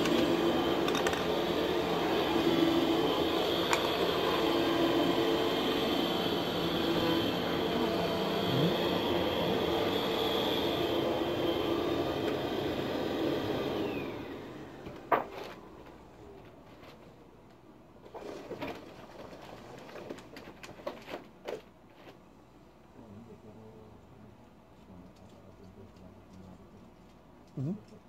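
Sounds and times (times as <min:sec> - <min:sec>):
machine humming and winding down: 0:00.0 - 0:14.9.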